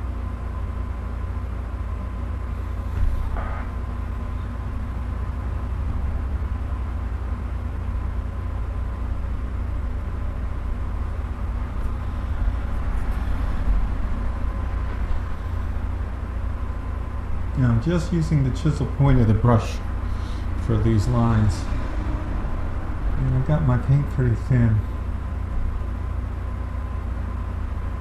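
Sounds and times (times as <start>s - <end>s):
low rumble: 2.3s - 28.0s.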